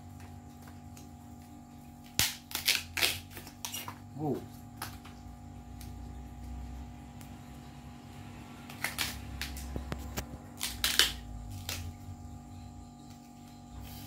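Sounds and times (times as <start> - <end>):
low hum: 0.0 - 14.0
plant stalk crackling as peeled: 2.0 - 4.0, 8.6 - 12.1.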